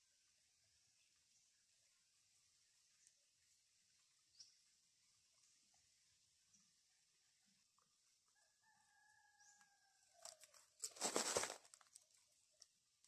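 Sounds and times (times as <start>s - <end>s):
faint rooster crowing: 8.3s - 10.7s
rustle of shaken tree branch: 10.2s - 11.8s.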